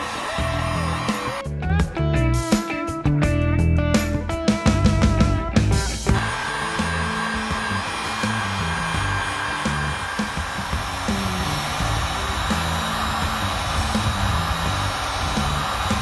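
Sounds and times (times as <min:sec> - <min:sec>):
heat gun blowing hot air: 0:00.0 - 0:01.4, 0:06.1 - 0:16.0
bass notes of background music: 0:00.0 - 0:16.0
guitar music: 0:00.0 - 0:16.0.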